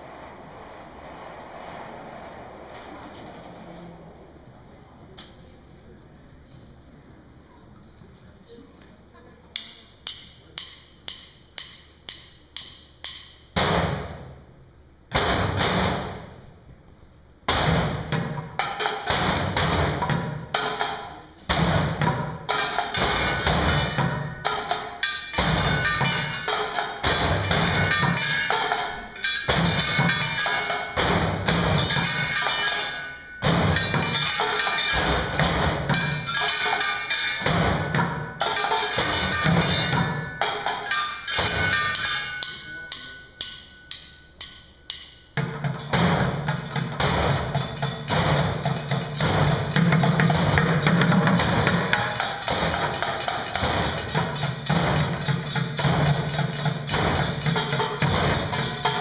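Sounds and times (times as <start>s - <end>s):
drumsticks clicking: 9.5s - 13.5s
junkyard percussion band: 9.5s - 16.6s, 17.4s - 59.0s
ringing drum hits: 17.5s - 59.0s.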